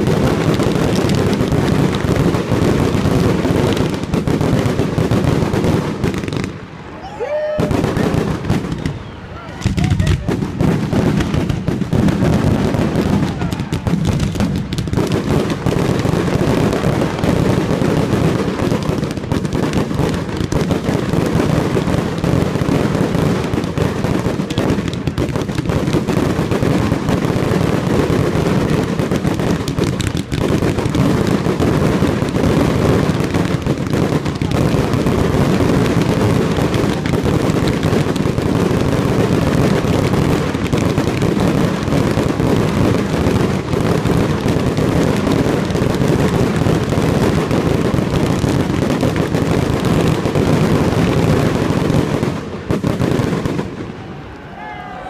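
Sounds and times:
fireworks crackling and banging: 0:00.0 - 0:54.3.

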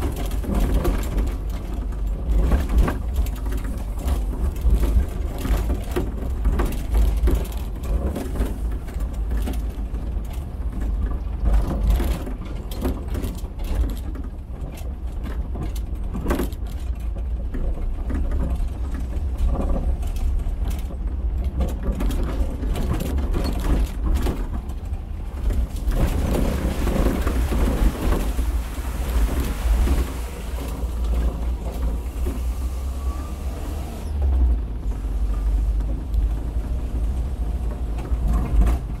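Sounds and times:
water splashing: 0:25.0 - 0:34.1.

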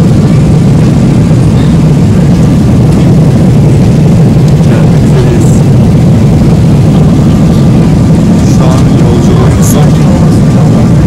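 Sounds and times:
airliner cabin drone: 0:00.0 - 0:11.0.

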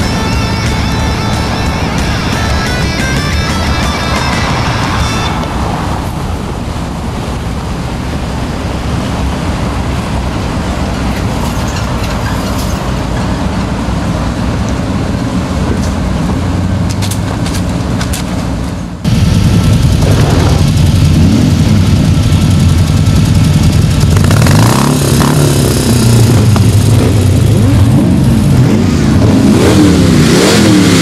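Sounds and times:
background music: 0:00.0 - 0:05.9
motorcycles rumbling in a group: 0:00.0 - 0:31.0.

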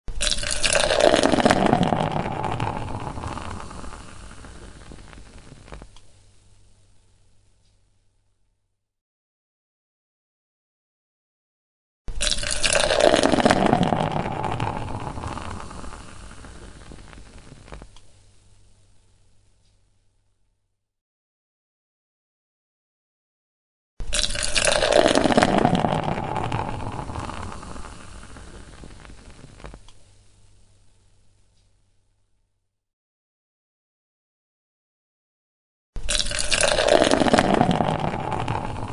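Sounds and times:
beer pouring into a glass: 0:00.1 - 0:05.6, 0:12.1 - 0:17.8, 0:24.0 - 0:29.8, 0:36.0 - 0:38.9.

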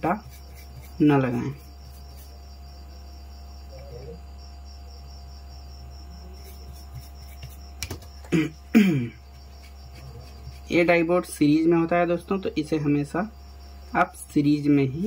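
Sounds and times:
voice: 0:01.0 - 0:01.6, 0:03.7 - 0:04.2, 0:10.7 - 0:13.3, 0:14.0 - 0:15.0.

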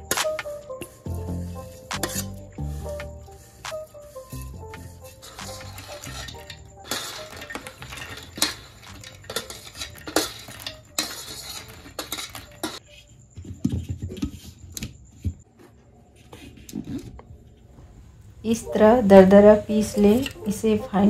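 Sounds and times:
kitchen utensils clinking: 0:04.2 - 0:12.8, 0:18.5 - 0:21.0.

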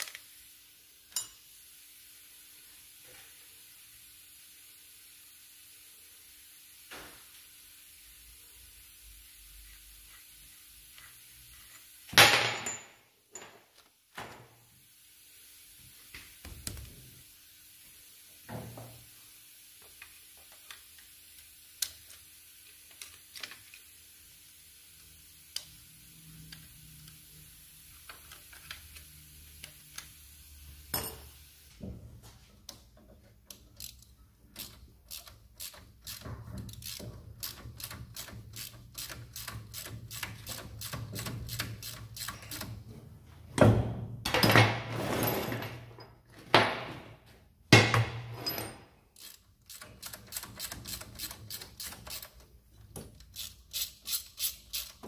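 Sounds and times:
ratchet spanner clicking rapidly: 0:33.5 - 0:42.8, 0:49.2 - 0:52.4, 0:53.1 - 0:55.0.

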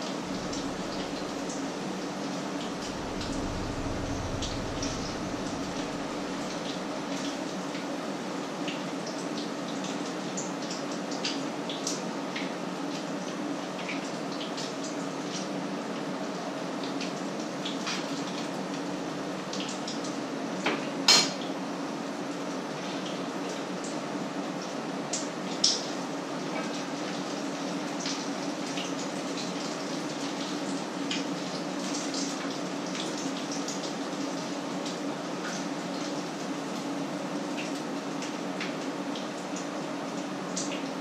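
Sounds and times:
steady low hum: 0:00.0 - 0:07.1.

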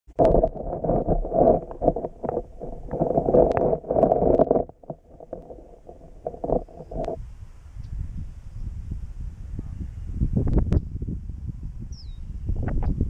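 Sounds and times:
muffled underwater water sloshing: 0:00.1 - 0:07.2.

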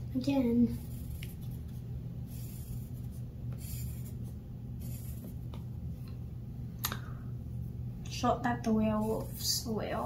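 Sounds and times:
steady low hum: 0:00.0 - 0:10.0
pencil scratching on paper: 0:00.4 - 0:05.5, 0:08.9 - 0:09.6.

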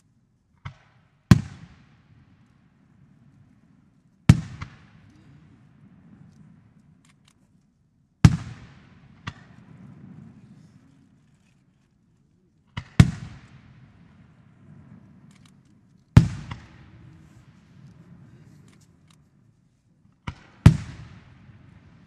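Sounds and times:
echo of booms: 0:12.8 - 0:15.3, 0:16.2 - 0:18.4, 0:20.3 - 0:22.0
firework shells booming: 0:12.8 - 0:19.1.

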